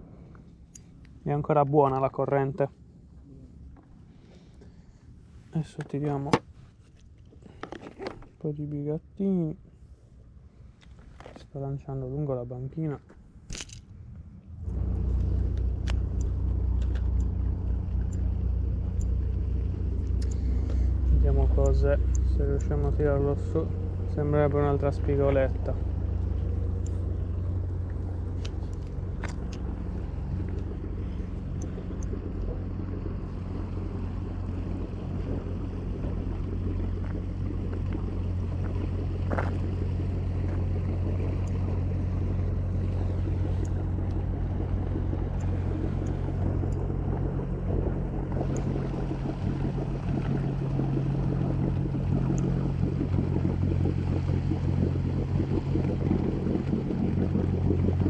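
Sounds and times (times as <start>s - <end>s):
boat engine idling: 14.2s - 58.0s.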